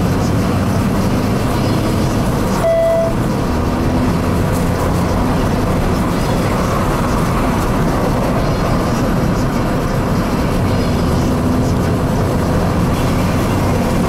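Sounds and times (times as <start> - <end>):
car engine running: 0.0 - 14.0
tyre and road noise: 0.0 - 14.0
short beep: 2.6 - 3.2.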